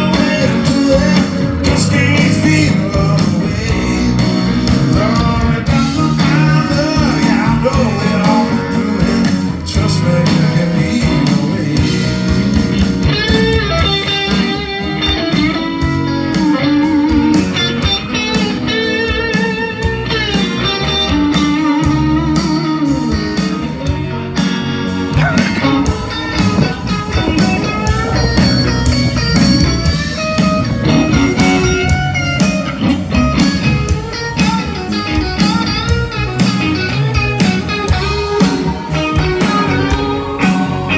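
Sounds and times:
blues rock band playing: 0.0 - 40.9
lead electric guitar bent notes: 0.0 - 40.9.

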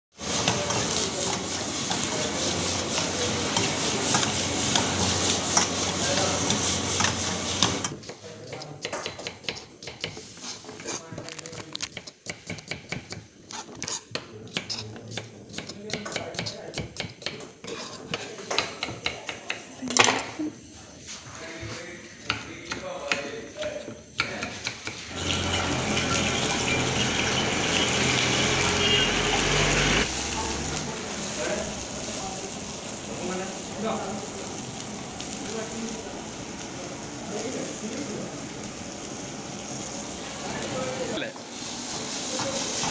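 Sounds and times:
food frying: 0.1 - 8.1, 25.0 - 42.9
gas flame rushing: 0.2 - 8.0
metal ladle scraping a wok: 0.2 - 8.1, 25.0 - 30.0
gas flame hissing: 0.2 - 8.6, 24.6 - 42.9
knife chopping on wooden board: 8.0 - 10.2, 11.9 - 19.6.

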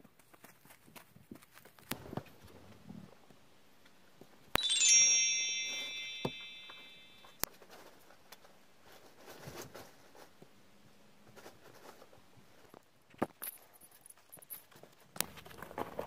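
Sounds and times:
ferrets scuffling on fabric: 0.0 - 2.6, 7.6 - 10.5, 11.2 - 12.8
bell-like chime: 4.6 - 7.4.

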